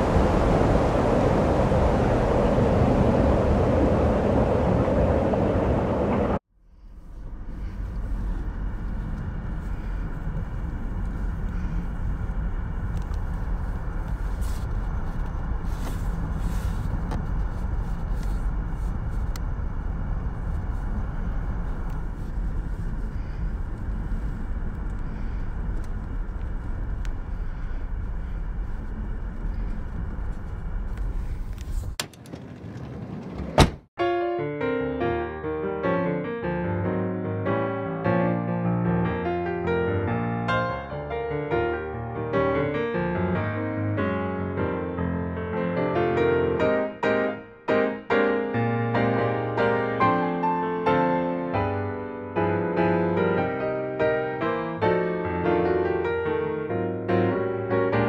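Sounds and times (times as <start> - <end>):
backhoe loader engine running: 0.0 - 6.4
car engine and tyres rumbling: 0.0 - 34.0.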